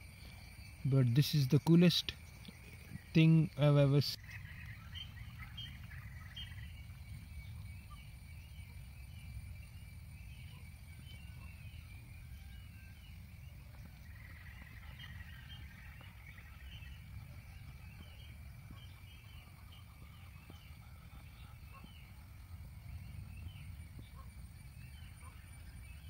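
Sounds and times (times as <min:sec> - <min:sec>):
faint bird chirps: 0:00.0 - 0:26.0.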